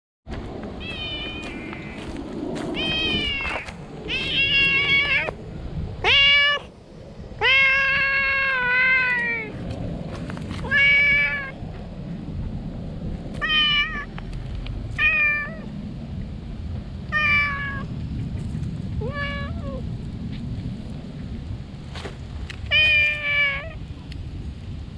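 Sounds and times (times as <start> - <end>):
cat meowing loudly: 0.8 - 2.1, 2.8 - 5.4, 6.0 - 6.7, 7.4 - 9.6, 10.6 - 11.6, 13.4 - 14.1, 15.0 - 15.7, 17.1 - 17.9, 19.0 - 19.8, 22.7 - 23.8.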